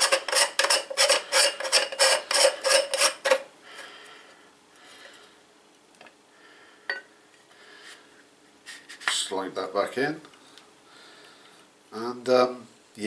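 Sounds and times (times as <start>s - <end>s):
screw cap threads rasping: 0.0s - 3.4s.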